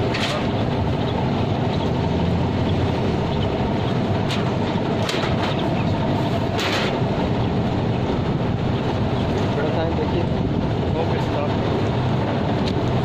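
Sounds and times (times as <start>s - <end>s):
low steady rumble: 0.0s - 13.0s
metallic knocks and scrapes: 6.6s - 7.0s.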